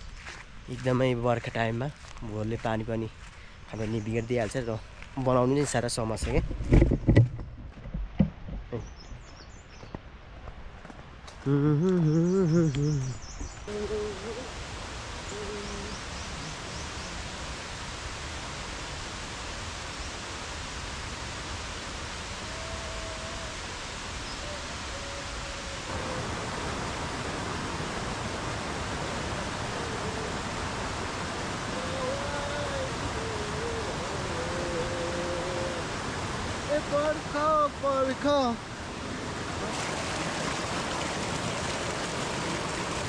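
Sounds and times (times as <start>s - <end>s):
person's voice: 0.7s - 3.1s, 3.7s - 6.4s, 11.4s - 14.5s, 15.3s - 17.2s, 29.2s - 31.0s, 31.6s - 35.9s, 36.6s - 38.6s
running water rushing: 12.5s - 43.0s
faint calls: 15.2s - 17.4s, 22.3s - 36.7s.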